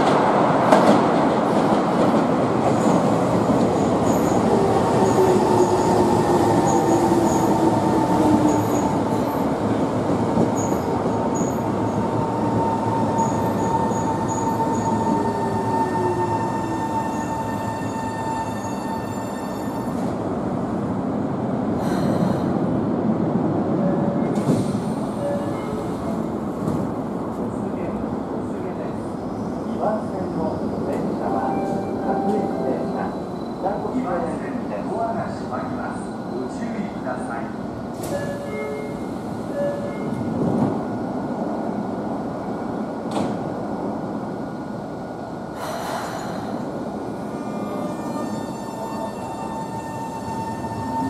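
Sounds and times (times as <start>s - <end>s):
train rumbling at platform: 0.0s - 51.0s.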